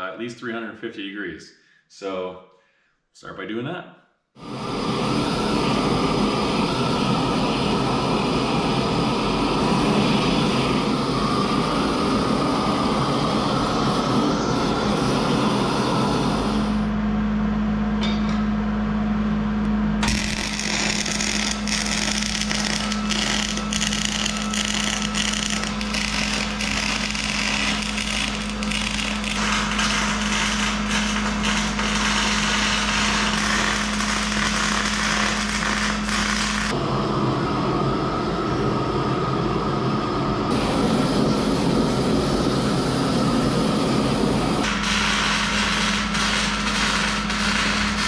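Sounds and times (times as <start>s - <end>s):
gas torch flame hissing: 4.4s - 16.9s, 20.0s - 36.8s, 40.5s - 48.0s
steady hum: 4.4s - 48.0s
welder crackling and popping: 20.0s - 36.8s, 44.6s - 48.0s.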